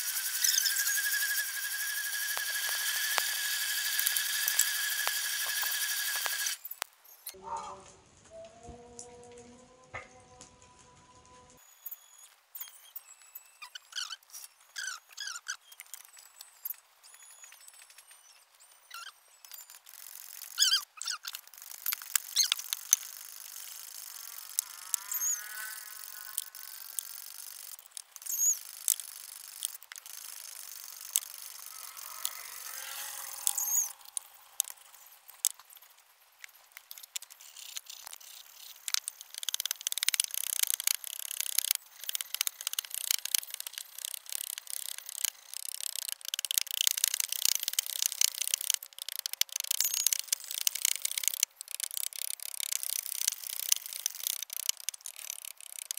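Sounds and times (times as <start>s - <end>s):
short wavering squeals: 0.0s - 7.4s, 11.1s - 35.4s.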